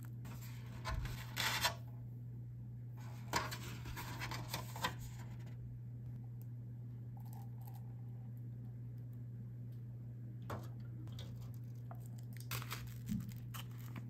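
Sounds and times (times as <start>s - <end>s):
low steady hum: 0.0s - 14.0s
plastic sachets crinkling: 11.5s - 14.0s.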